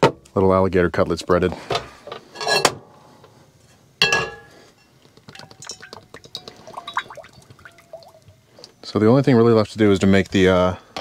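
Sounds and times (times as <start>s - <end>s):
glass jar clink: 4.0s - 8.3s.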